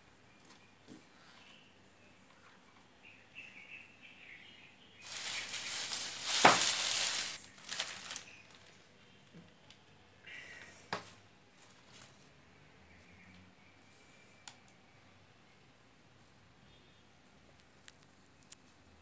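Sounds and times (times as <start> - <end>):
tape rustling: 5.0 - 8.8
crackles: 5.0 - 8.9, 17.5 - 18.8.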